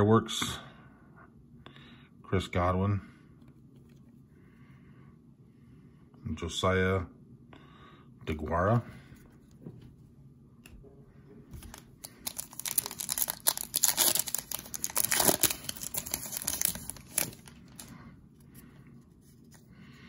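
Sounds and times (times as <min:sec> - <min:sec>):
foil wrapper tearing and crinkling: 0:11.6 - 0:17.9.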